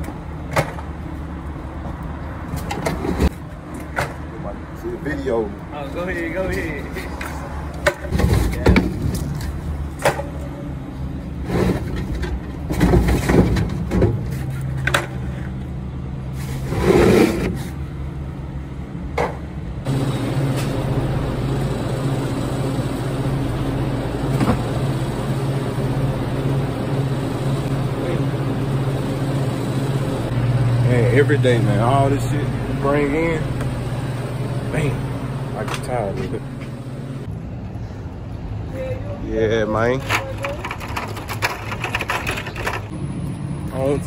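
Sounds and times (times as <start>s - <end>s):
plastic crates and bottles clattering: 11.6s - 15.1s, 40.0s - 42.9s
refrigeration fans humming: 15.8s - 44.0s.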